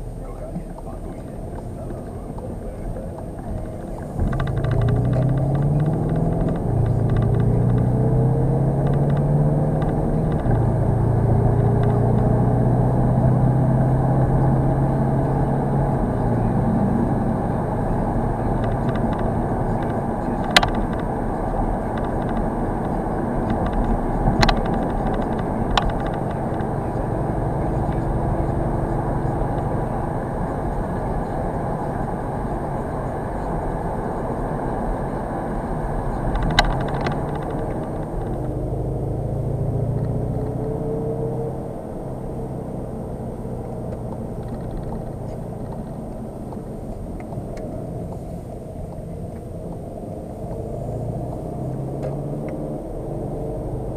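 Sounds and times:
diesel engine accelerating: 0.0 - 53.9
tyre and road noise: 0.0 - 53.9
sharp clicks: 1.4 - 12.4, 18.3 - 32.0, 36.0 - 40.6, 43.6 - 47.8.

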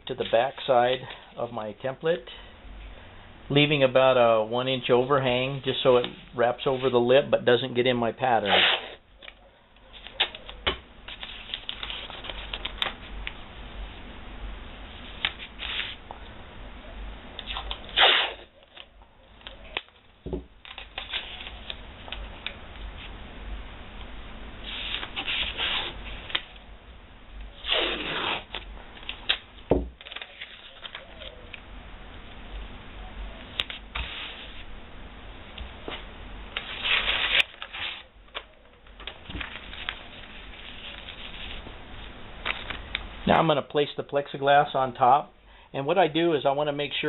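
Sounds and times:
tape ripping off roll: 8.4 - 9.0, 15.2 - 16.0, 17.4 - 18.9, 20.6 - 21.8, 24.6 - 26.6, 27.6 - 31.3, 33.5 - 34.6, 36.6 - 41.6
paper rustling: 9.2 - 13.2, 15.0 - 16.0, 20.7 - 23.1, 24.6 - 26.5, 30.0 - 31.4, 33.5 - 34.6, 36.6 - 42.8
hands rubbing tape: 15.0 - 16.0, 24.6 - 26.5, 27.6 - 29.4, 33.6 - 34.7.

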